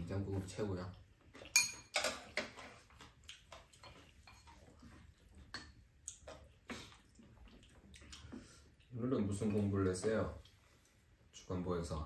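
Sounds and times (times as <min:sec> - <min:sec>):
spoons clicking against bowls: 0:01.5 - 0:02.2.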